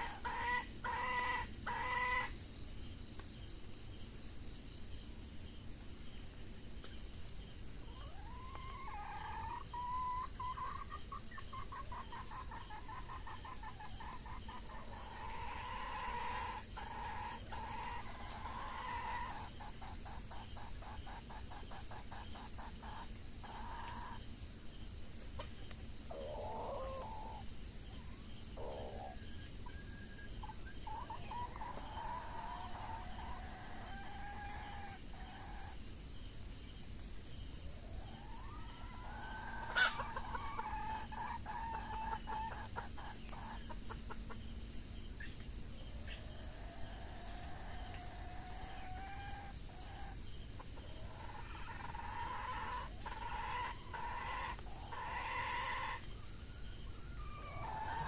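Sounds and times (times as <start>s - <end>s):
rapid clucking calls: 0.0s - 2.4s, 8.0s - 24.2s, 39.5s - 44.5s, 50.0s - 56.0s, 57.3s - 58.0s
high insect drone: 0.0s - 58.0s
rooster crowing: 51.5s - 58.0s.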